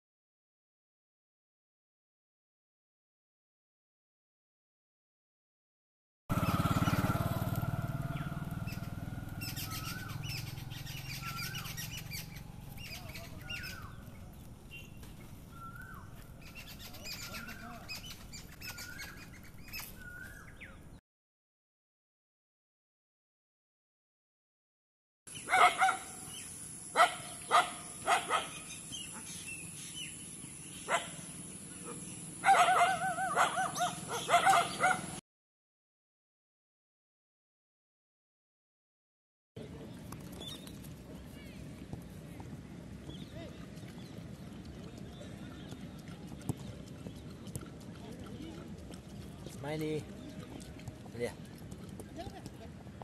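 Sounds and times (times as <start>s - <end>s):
bird calling: 6.3s - 20.9s, 25.3s - 35.2s
dog yelping cries: 25.4s - 26.2s, 27.0s - 29.3s, 31.8s - 35.2s
dog barking in short yaps: 25.5s - 26.1s, 31.8s - 35.1s.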